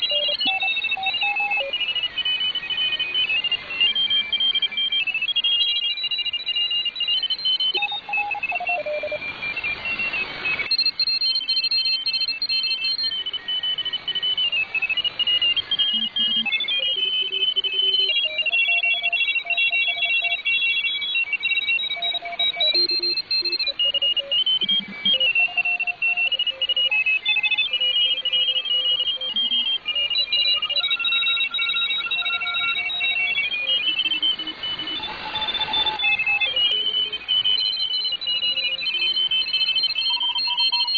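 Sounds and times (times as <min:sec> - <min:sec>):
beeping radio tones: 0:00.0 - 0:40.9
radio static hiss: 0:07.8 - 0:20.8, 0:22.0 - 0:37.6.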